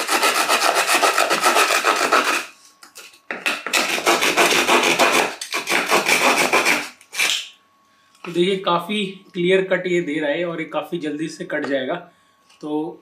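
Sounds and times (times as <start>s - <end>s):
hand saw cutting wood: 0.0s - 2.5s, 3.5s - 7.5s.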